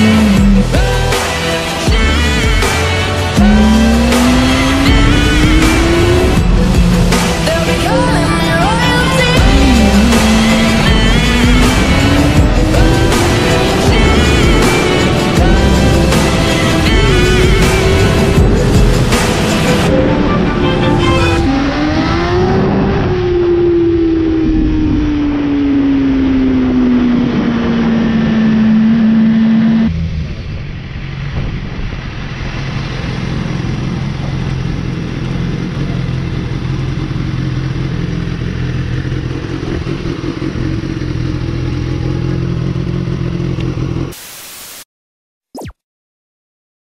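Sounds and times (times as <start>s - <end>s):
motorcycle engine: 0.0s - 44.1s
wind rush: 8.2s - 28.5s, 29.9s - 35.7s.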